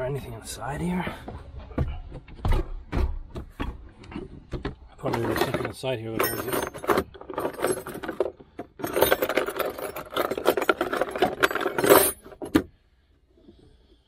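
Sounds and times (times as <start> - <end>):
tools clinking and rattling: 3.6 - 12.7.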